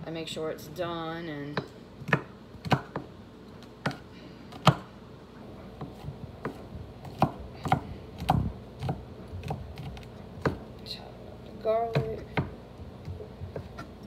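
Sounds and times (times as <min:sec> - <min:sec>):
knife chopping on a wooden board: 0:01.6 - 0:03.1, 0:03.8 - 0:04.0, 0:04.6 - 0:04.9, 0:05.8 - 0:10.6, 0:11.9 - 0:14.0.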